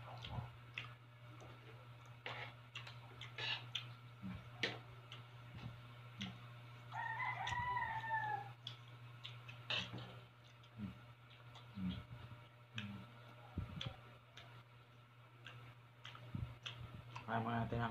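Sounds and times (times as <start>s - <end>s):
clicks and smacks of eating: 0.0s - 7.6s, 8.5s - 17.6s
rooster crowing: 6.9s - 8.6s.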